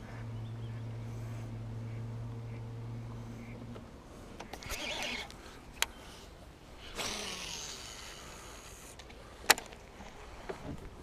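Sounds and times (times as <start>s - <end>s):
rush of fishing line casting: 4.3s - 9.3s
fishing reel click: 7.0s - 9.0s.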